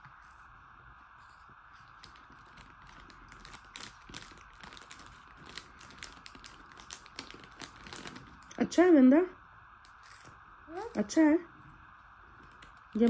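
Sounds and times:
plastic chips packet crinkling: 1.9 - 8.6, 12.4 - 13.0.

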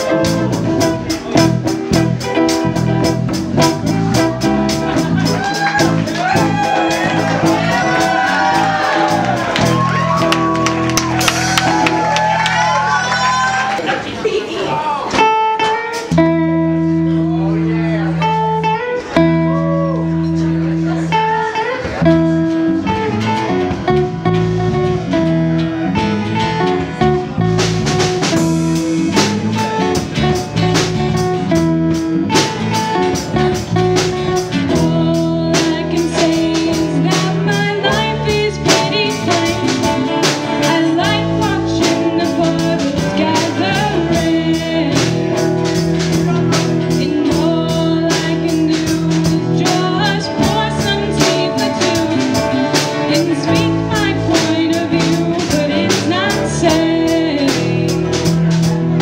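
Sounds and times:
drum kit steady beat: 0.0 - 13.7, 21.9 - 59.0
electric guitars: 0.0 - 14.4, 15.1 - 59.0.

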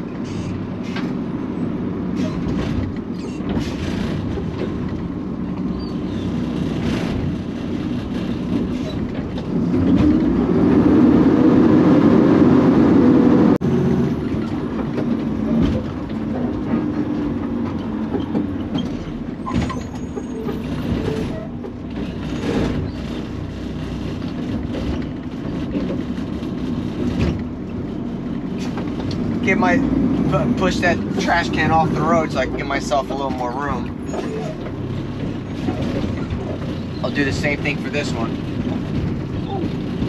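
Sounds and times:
garbage truck running: 0.0 - 40.0
knocks and rattles: 2.2 - 10.5, 14.2 - 40.0.

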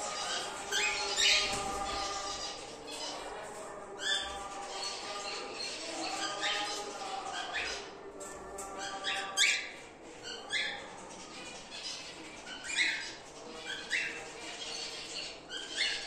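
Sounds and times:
cockatiels chirping: 8.8 - 16.0.

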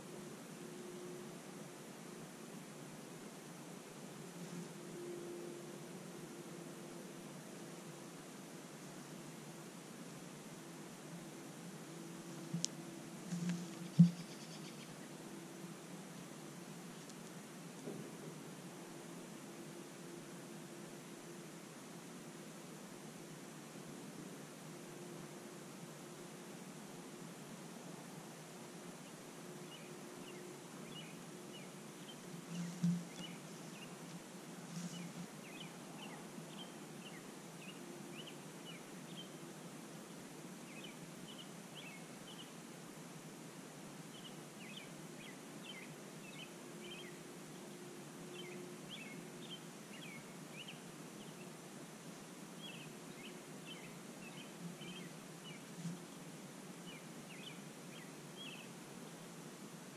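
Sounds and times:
soft bumps: 13.2 - 14.3, 32.5 - 33.4
night animals chirping: 13.8 - 15.0.

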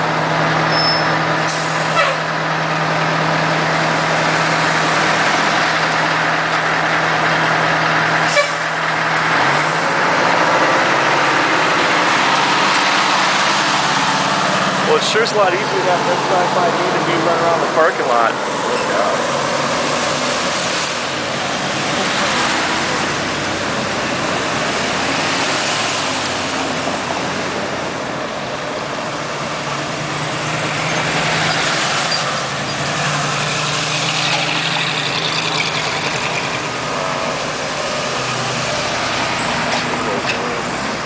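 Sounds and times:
cars driving slowly past: 0.0 - 41.0.

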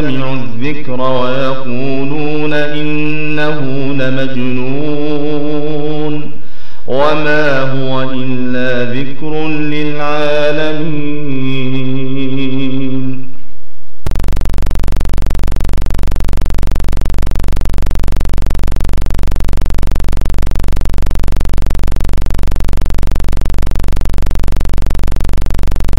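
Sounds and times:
loud buzz with deep hum: 14.0 - 25.9.

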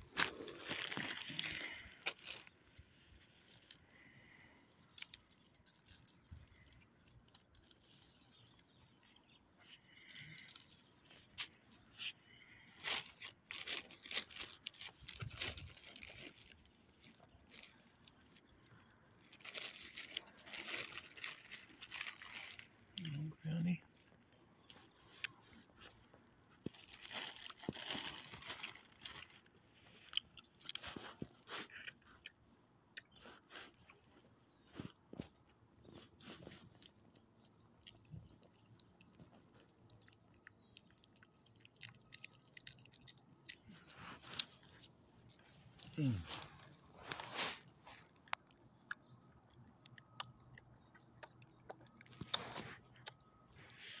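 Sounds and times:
clicks on gravel: 0.0 - 7.9
dog collar tags clinking: 4.5 - 7.7
dog chewing and crunching: 34.7 - 53.8.

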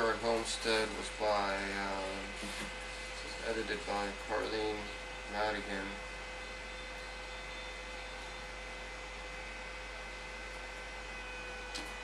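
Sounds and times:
steady hum and hiss: 0.0 - 12.0
faint steady tones: 2.9 - 12.0.

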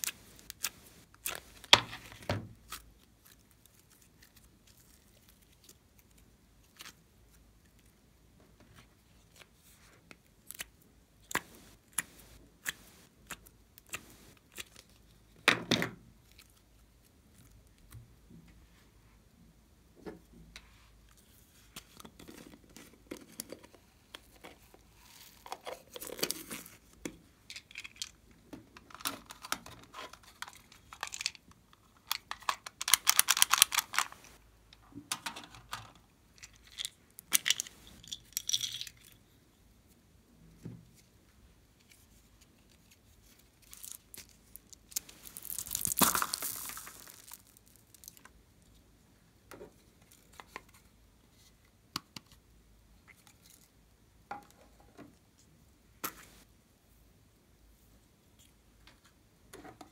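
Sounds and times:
foam beads crackling and rattling: 0.0 - 2.0, 32.1 - 34.4, 43.6 - 48.3.

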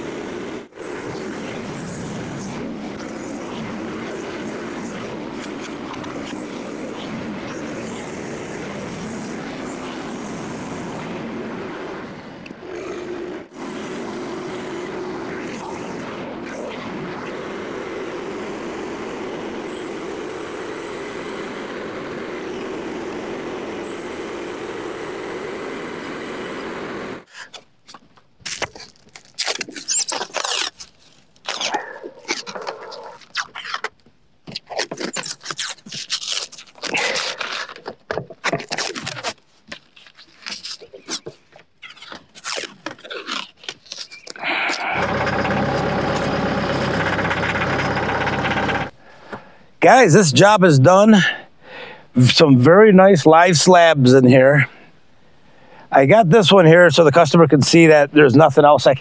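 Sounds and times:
bandsaw mill running: 12.6 - 27.3, 44.4 - 49.0.

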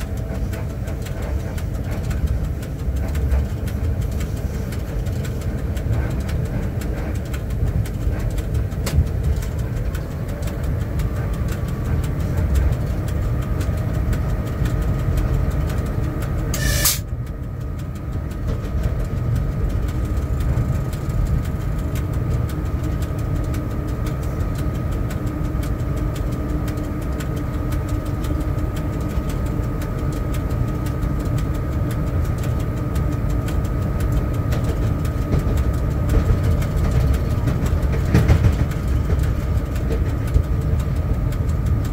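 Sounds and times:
locomotive low rumble: 0.0 - 41.9
high whine: 8.6 - 17.2
brief sharp noise: 16.6 - 17.0.

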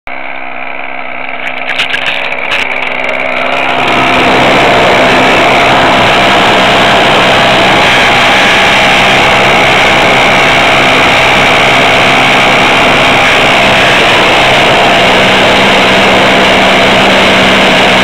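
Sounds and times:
model plane motor running: 0.2 - 18.0.

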